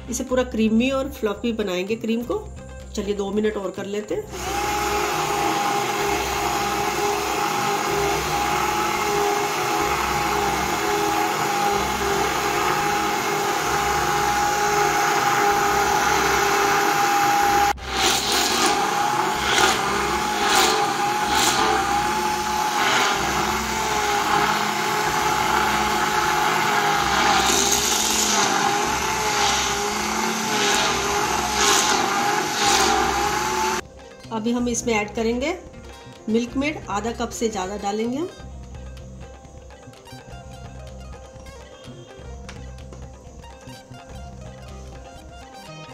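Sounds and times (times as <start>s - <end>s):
hand blender motor whine: 4.3s - 33.8s.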